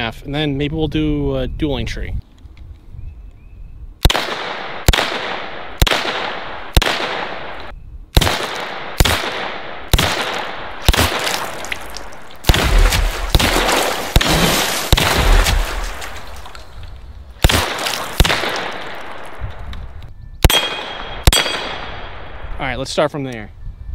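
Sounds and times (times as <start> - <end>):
rifle shots with echo: 4.0 - 16.4, 17.4 - 19.4, 20.4 - 22.5.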